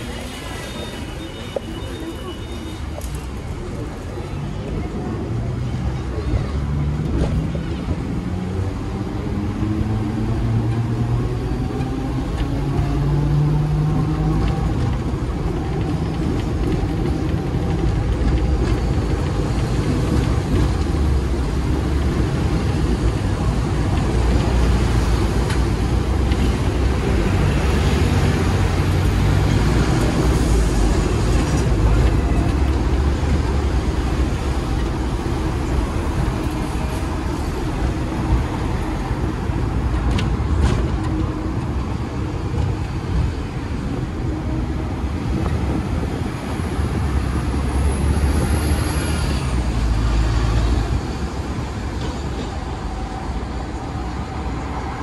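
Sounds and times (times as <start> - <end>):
tram rumbling on rails: 0.0 - 55.0.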